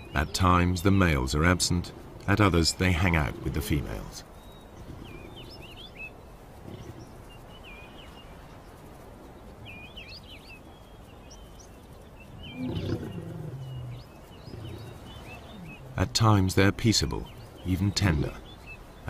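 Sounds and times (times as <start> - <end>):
small birds chirping: 0.0 - 19.0
lion growling: 12.4 - 16.2.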